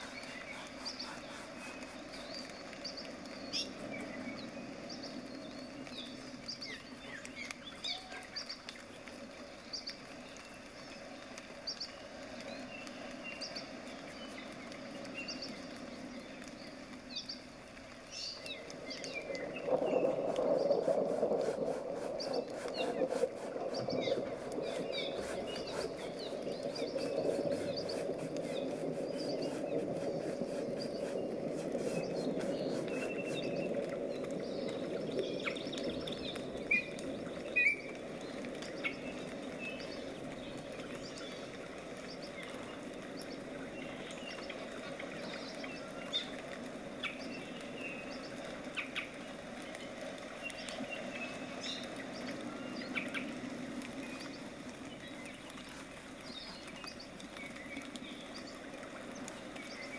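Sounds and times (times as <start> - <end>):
brush scratching paint: 0.0 - 2.8, 20.2 - 33.8
small birds chirping: 0.0 - 59.9.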